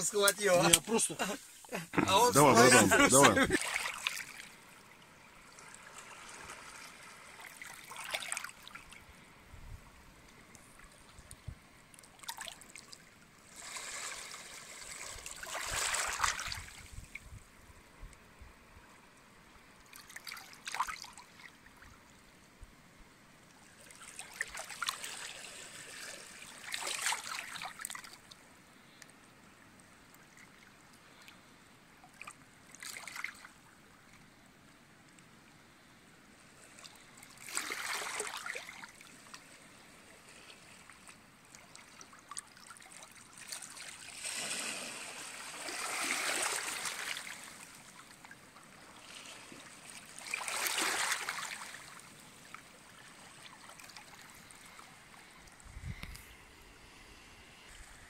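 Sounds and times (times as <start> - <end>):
water splashing: 0.0 - 4.6, 5.4 - 9.0, 12.1 - 16.8, 37.4 - 39.0, 49.9 - 52.0
waves lapping over stones: 0.0 - 4.8, 5.4 - 9.0, 12.1 - 17.2, 19.9 - 21.5, 23.7 - 28.3, 32.2 - 33.5, 36.6 - 55.4.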